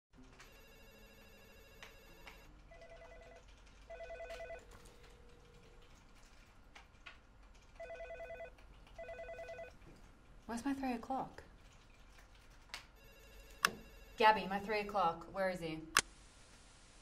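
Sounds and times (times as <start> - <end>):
telephone ringing: 0.4 - 5.3, 7.8 - 9.8, 13.0 - 14.5.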